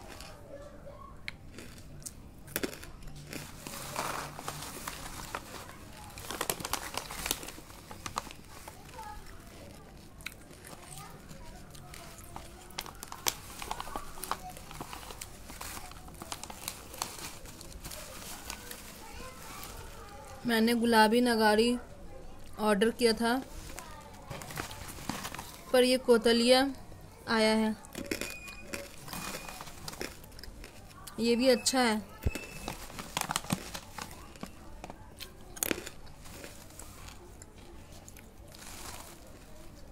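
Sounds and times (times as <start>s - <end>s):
plastic pouch crinkling: 2.6s - 20.5s, 23.4s - 25.7s, 28.0s - 31.0s, 32.1s - 39.9s
crystals crunching: 28.0s - 30.8s, 35.6s - 37.2s.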